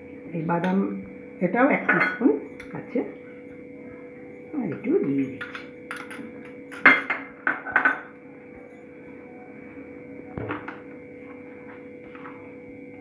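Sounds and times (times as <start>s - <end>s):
electrical hum: 0.0s - 13.0s
utensils knocking on bowl: 1.7s - 2.8s, 4.7s - 8.1s.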